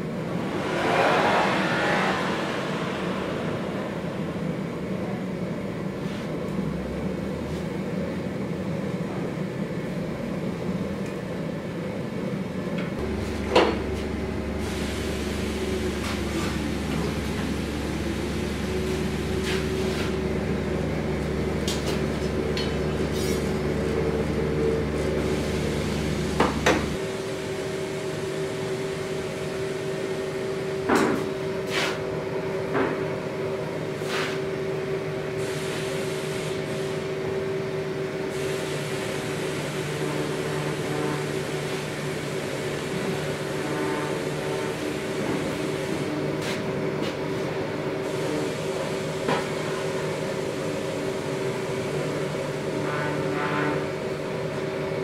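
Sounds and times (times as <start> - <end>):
deep rumble: 0.0 - 6.0.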